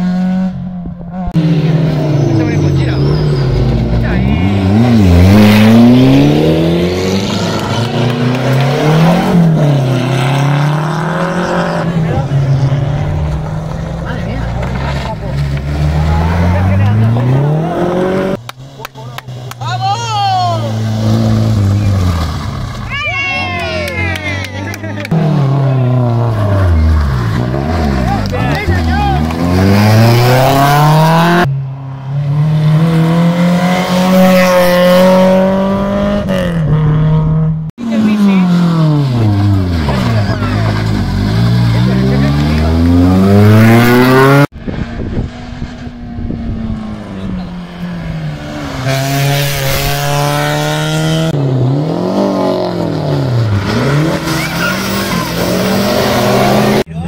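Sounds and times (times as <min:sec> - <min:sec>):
rally car engine accelerating: 0:00.0 - 0:19.6, 0:24.6 - 0:57.0
rally car engine pulling under load: 0:38.1 - 0:56.9.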